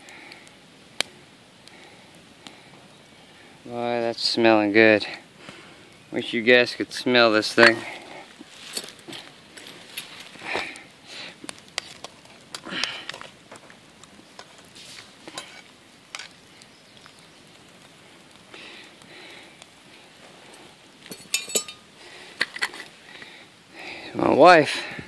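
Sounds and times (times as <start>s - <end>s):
campfire crackling and popping: 0.0s - 25.0s
metal spoon clinking on pot: 21.1s - 21.8s.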